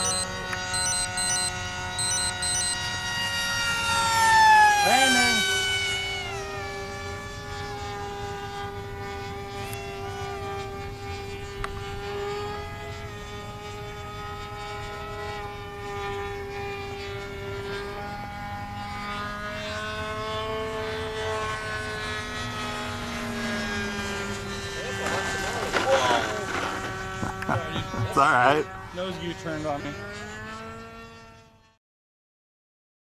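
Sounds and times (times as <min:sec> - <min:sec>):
model jet motor whine: 0:00.0 - 0:31.8.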